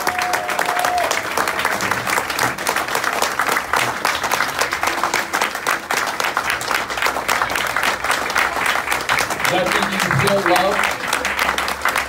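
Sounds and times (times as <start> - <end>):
audience applauding: 0.0 - 12.0.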